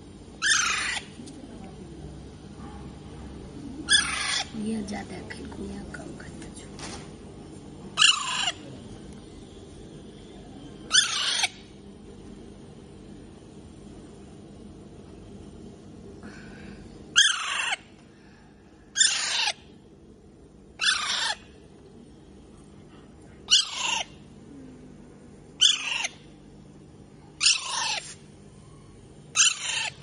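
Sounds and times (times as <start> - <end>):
parakeet calling: 0.4 - 1.2, 3.8 - 4.7, 8.0 - 8.6, 10.9 - 11.7, 17.1 - 17.8, 18.9 - 19.7, 20.8 - 21.6, 23.5 - 24.2, 25.6 - 26.3, 27.4 - 28.2, 29.3 - 30.0.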